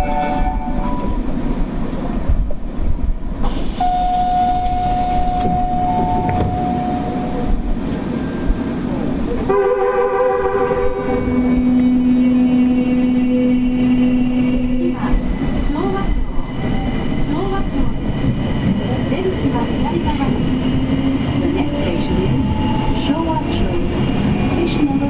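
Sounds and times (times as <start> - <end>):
subway train rumble in tunnel: 0.0 - 25.0.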